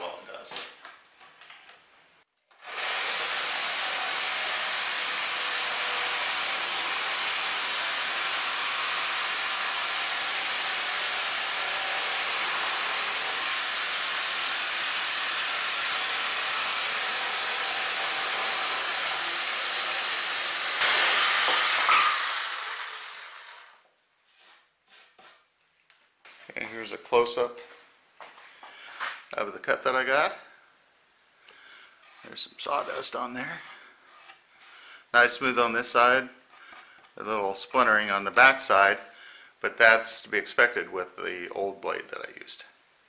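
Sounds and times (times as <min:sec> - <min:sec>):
reciprocating saw cutting wood: 0:02.6 - 0:23.8.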